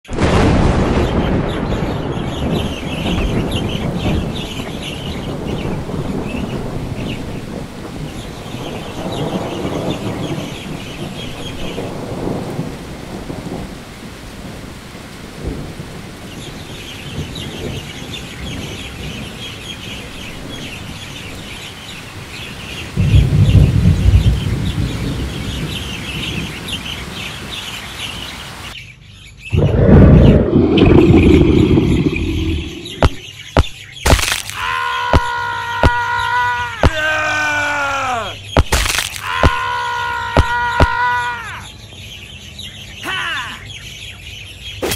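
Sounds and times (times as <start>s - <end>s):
thunder rumbling: 0.1s - 27.6s, 29.5s - 33.3s
steady rain: 0.1s - 28.8s, 29.5s - 44.9s
birds chirping: 0.8s - 12.6s, 16.1s - 44.9s.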